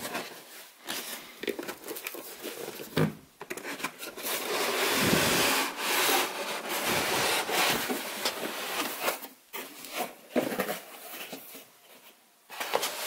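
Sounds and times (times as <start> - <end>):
cardboard rubbing and scraping: 4.1 - 11.5.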